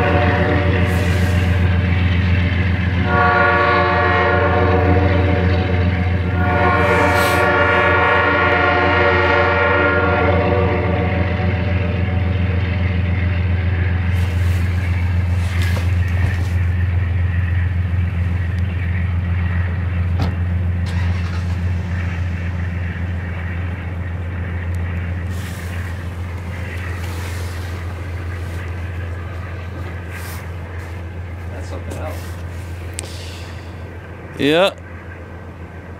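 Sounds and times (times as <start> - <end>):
locomotive horn: 0.0 - 1.7, 2.9 - 12.6, 20.9 - 21.4
train wheels on rails: 0.0 - 35.9
low diesel rumble: 12.0 - 35.9.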